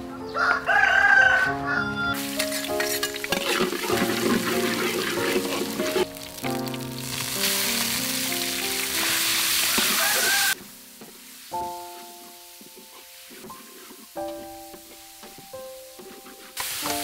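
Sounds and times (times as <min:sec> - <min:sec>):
background music with held notes: 0:00.0 - 0:17.0
metal spoon stirring: 0:02.2 - 0:06.5
food sizzling in a wok: 0:02.2 - 0:17.0.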